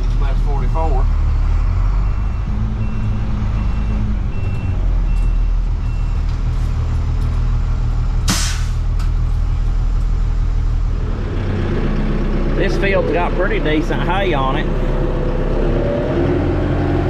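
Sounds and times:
truck engine running: 0.0s - 17.0s
air brake hiss: 8.3s - 8.8s.

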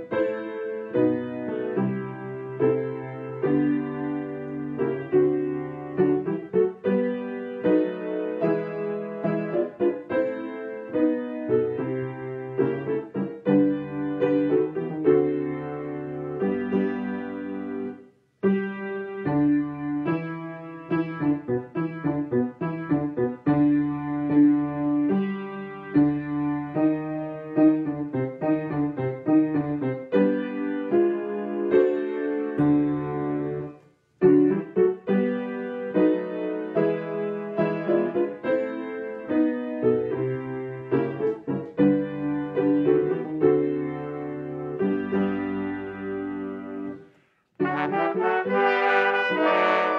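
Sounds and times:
solo piano playing: 0.0s - 49.9s.

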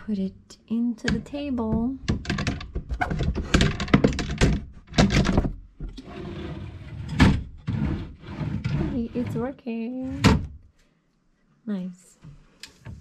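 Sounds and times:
desk drawer unit knocking: 1.1s - 6.4s.

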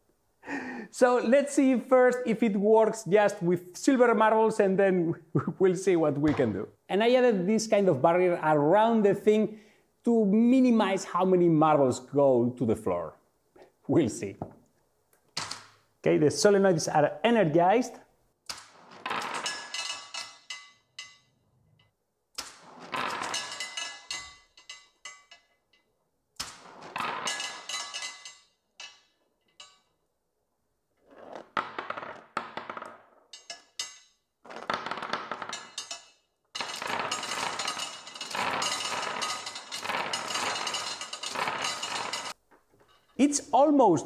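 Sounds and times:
steel marbles clattering: 18.6s - 21.3s, 22.4s - 25.5s, 26.4s - 29.9s, 33.3s - 43.2s.

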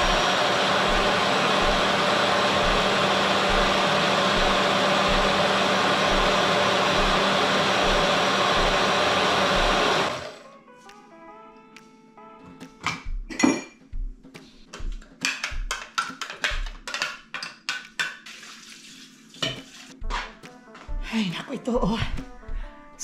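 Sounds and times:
blender running: 0.0s - 10.5s.

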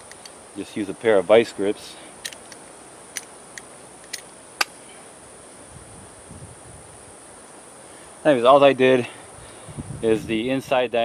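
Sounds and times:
high insect hum: 0.0s - 11.0s
locking pliers metal clicks: 2.2s - 4.7s.

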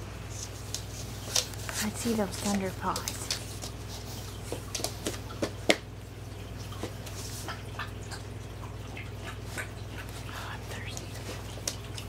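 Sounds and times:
puppy claws clicking on wood floor: 0.4s - 5.9s, 10.9s - 12.0s.

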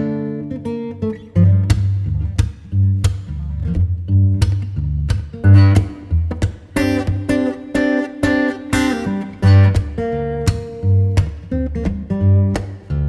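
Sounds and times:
acoustic guitar music: 0.0s - 13.0s
low bass notes: 1.3s - 7.4s.

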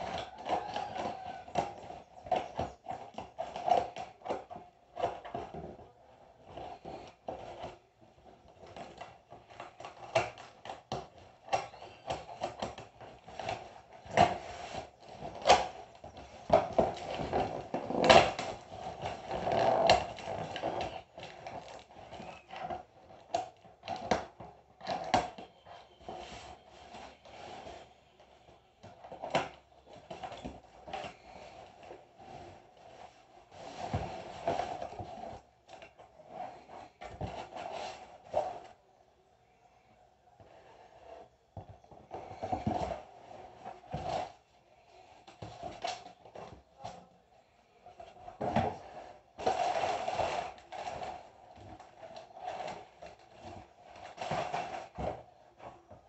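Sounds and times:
cardboard tearing and ripping: 8.7s - 25.4s, 48.6s - 55.2s.

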